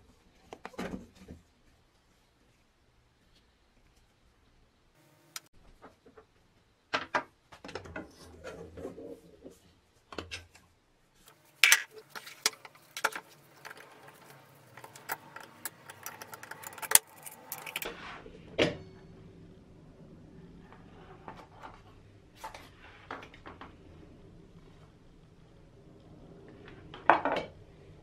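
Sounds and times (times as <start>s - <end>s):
metal lamp parts clicking and knocking: 11.6s - 17.8s.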